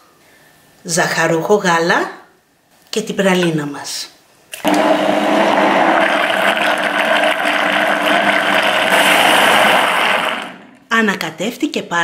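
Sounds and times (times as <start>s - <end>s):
blender motor running: 4.6s - 10.8s.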